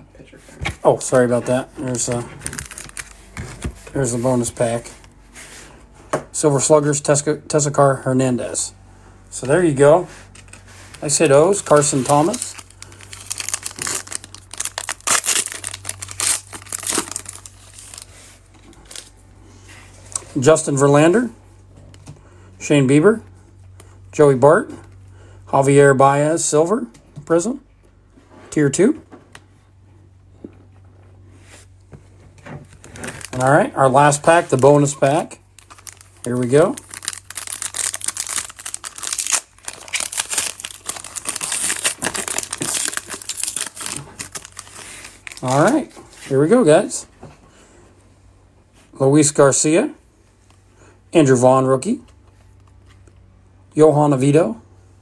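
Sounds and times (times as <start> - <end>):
cards rustling: 1.2 - 5.2, 10.3 - 19.2, 34.1 - 46.2
foil wrapper crinkling and tearing: 2.0 - 3.3, 11.0 - 19.1, 32.8 - 33.5, 34.1 - 46.0.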